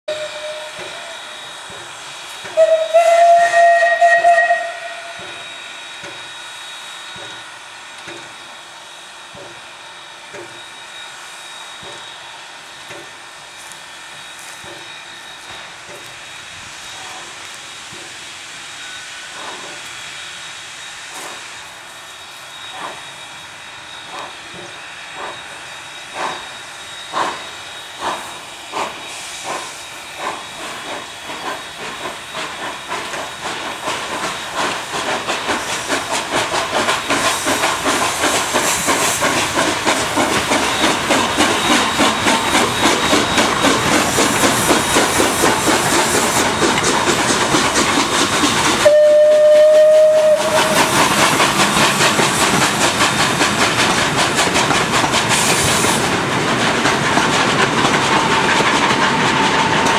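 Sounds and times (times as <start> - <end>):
steam whistle blowing: 0.1 - 7.4, 48.6 - 51.4
steam hissing: 0.1 - 59.9
steam locomotive exhaust chuffs: 0.1 - 59.9.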